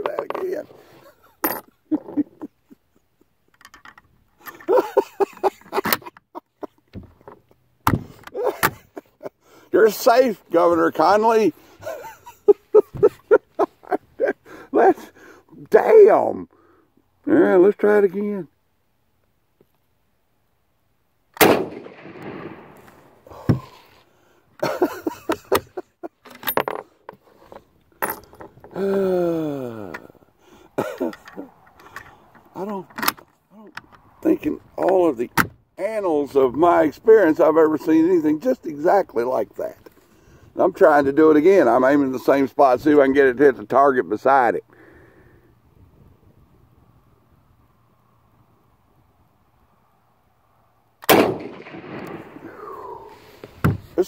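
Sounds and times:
person laughing: 0:01.0 - 0:03.6, 0:04.5 - 0:06.9, 0:08.3 - 0:09.4, 0:11.8 - 0:15.1, 0:24.6 - 0:26.2, 0:28.8 - 0:30.1, 0:30.8 - 0:31.6
rifle bolt clicking and rattling: 0:03.5 - 0:04.7
rifle shot: 0:21.4 - 0:23.2, 0:51.0 - 0:52.8
dull thump: 0:23.3 - 0:23.8, 0:53.5 - 0:54.0.

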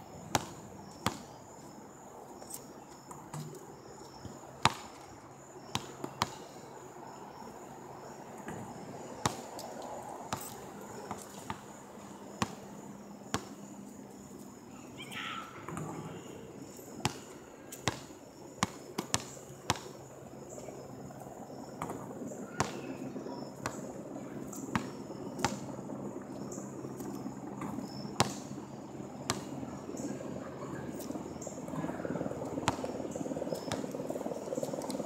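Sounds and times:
insects chirring: 0:00.0 - 0:35.0
basketball bouncing on asphalt: 0:00.3 - 0:01.3, 0:04.2 - 0:05.0, 0:05.7 - 0:06.4, 0:10.3 - 0:11.7, 0:12.3 - 0:12.6, 0:13.3 - 0:13.5, 0:17.0 - 0:19.9, 0:27.6 - 0:28.4, 0:29.3 - 0:29.5, 0:32.6 - 0:32.9, 0:33.5 - 0:33.9.

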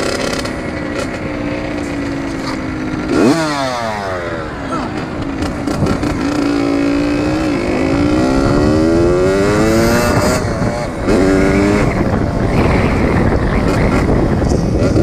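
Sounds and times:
dirt bike engine revving: 0:00.0 - 0:15.0
wind noise on microphone: 0:05.0 - 0:15.0.

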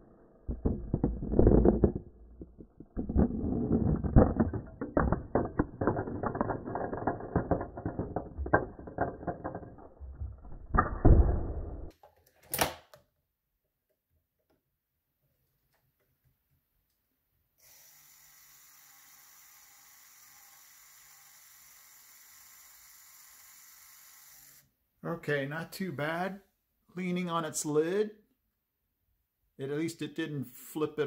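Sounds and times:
toy robot motors and gears clattering: 0:00.5 - 0:10.4.

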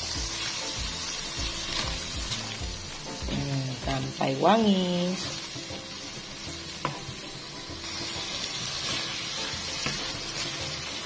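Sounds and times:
paste sizzling in oil: 0:00.0 - 0:11.0
spatula scraping a wok: 0:05.2 - 0:11.0.

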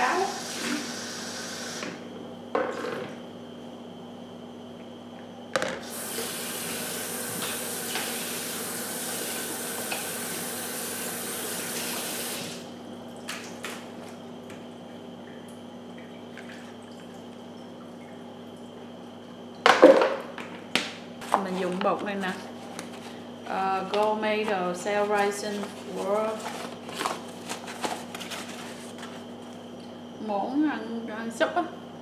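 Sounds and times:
loud clatter at sink: 0:19.7 - 0:20.5.

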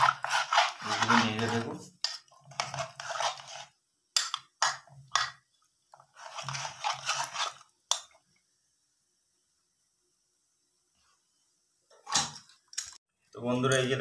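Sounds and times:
metal spoon scraping pot: 0:00.0 - 0:05.4, 0:06.0 - 0:08.1.

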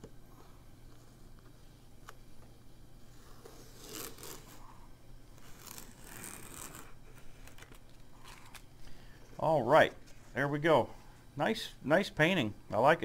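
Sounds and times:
tape peeling off paper: 0:03.4 - 0:04.6, 0:05.4 - 0:08.7.

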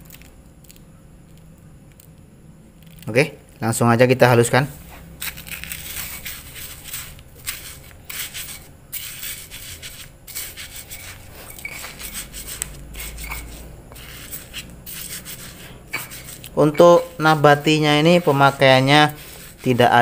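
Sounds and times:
stone pestle grinding in mortar: 0:05.2 - 0:20.0.

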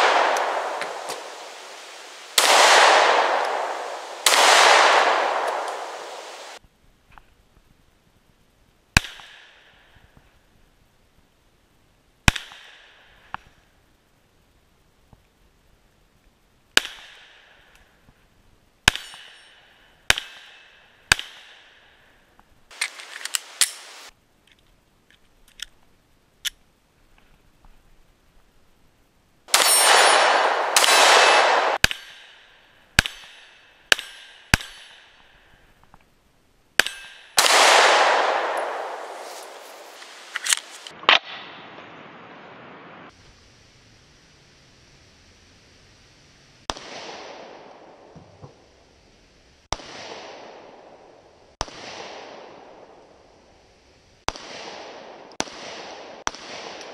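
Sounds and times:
pistol shots: 0:00.0 - 0:06.6, 0:29.5 - 0:32.4, 0:36.8 - 0:41.5, 0:54.3 - 0:56.9
steel targets ringing: 0:29.5 - 0:35.3.

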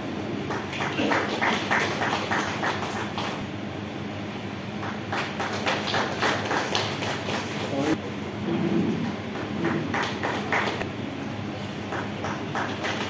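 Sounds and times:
audience clapping in rhythm: 0:00.4 - 0:03.4, 0:04.7 - 0:07.9, 0:09.3 - 0:10.9, 0:11.8 - 0:13.0.

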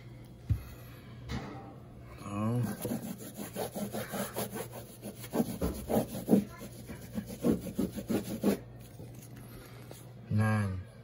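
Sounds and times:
cloth wipe scrubbing a wall: 0:02.6 - 0:08.6.

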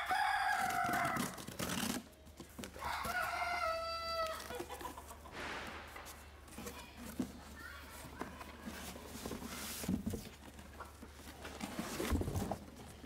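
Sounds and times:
rooster crowing: 0:00.0 - 0:01.4, 0:02.8 - 0:04.5.

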